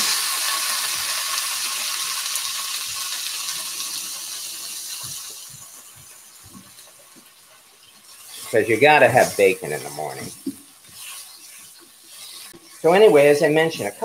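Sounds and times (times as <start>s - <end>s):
bacon sizzling in a skillet: 0.0s - 14.0s.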